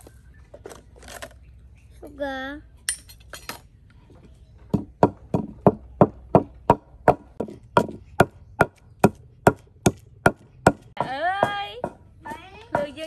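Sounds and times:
wooden pestle pounding in mortar: 4.7s - 13.0s.

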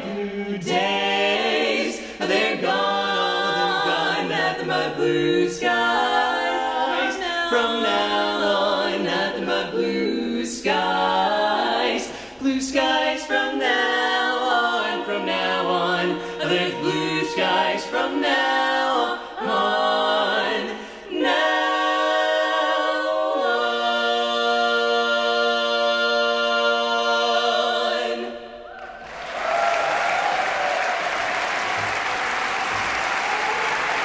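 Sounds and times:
quartet singing a cappella: 0.0s - 28.8s
audience applause: 28.8s - 34.0s.

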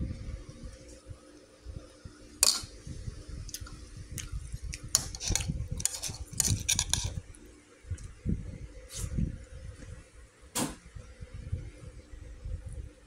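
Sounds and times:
spoon clinking and scraping a bowl: 5.0s - 7.2s.

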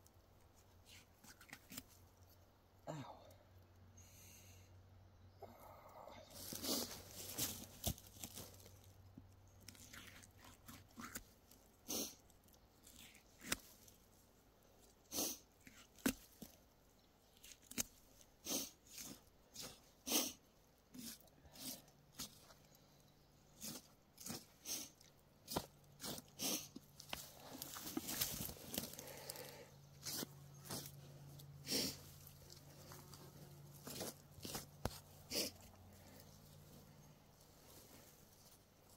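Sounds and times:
hide crackling and tearing: 9.6s - 11.6s.

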